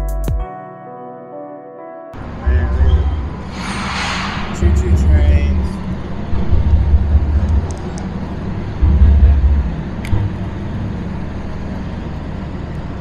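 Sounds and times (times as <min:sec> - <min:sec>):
low rumble: 0:02.2 - 0:11.6
wind gusts buffeting microphone: 0:02.2 - 0:13.0.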